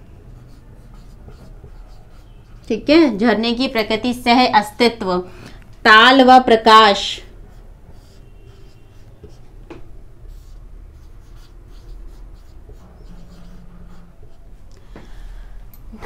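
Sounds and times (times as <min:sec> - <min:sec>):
marker squeaking on whiteboard: 0:00.3 - 0:03.0, 0:07.5 - 0:14.7.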